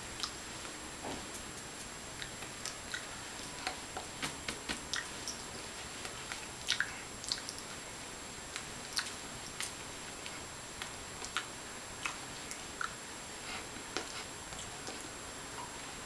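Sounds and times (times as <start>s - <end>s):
steady hiss: 0.0s - 16.0s
mouth clicks and smacks: 1.3s - 3.1s, 4.2s - 5.4s, 6.0s - 7.6s, 8.5s - 13.0s.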